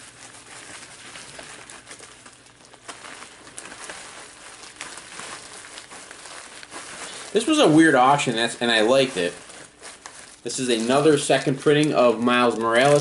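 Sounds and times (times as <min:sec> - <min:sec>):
bubble wrap crinkling: 0:00.0 - 0:13.0.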